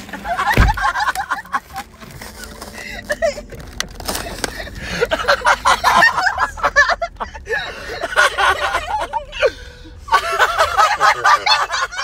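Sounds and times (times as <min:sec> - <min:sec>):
dull thump: 0:00.5 - 0:01.0.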